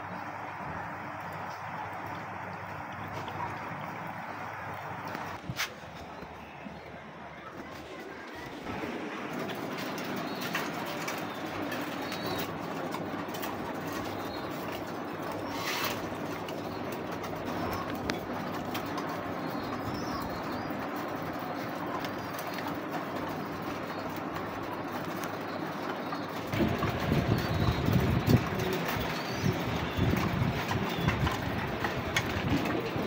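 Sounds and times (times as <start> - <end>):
pigeons cooing: 8.7 - 33.0.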